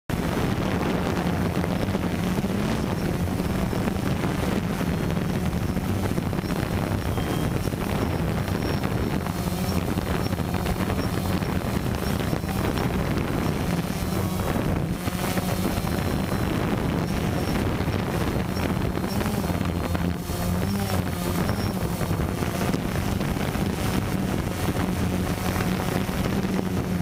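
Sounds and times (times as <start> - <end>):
drone motors humming: 0.1 - 27.0
wind buffeting microphone: 0.1 - 27.0.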